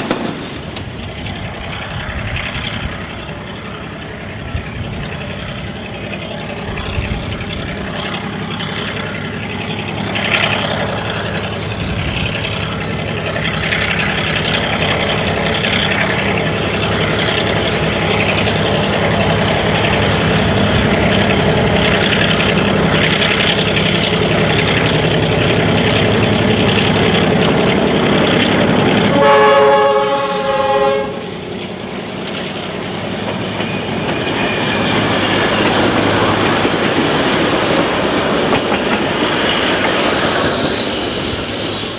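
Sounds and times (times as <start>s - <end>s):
train wheels clattering over rail joints: 0.0s - 29.3s, 31.5s - 41.9s
diesel locomotive engine running: 0.0s - 41.9s
locomotive horn blast: 29.0s - 31.3s.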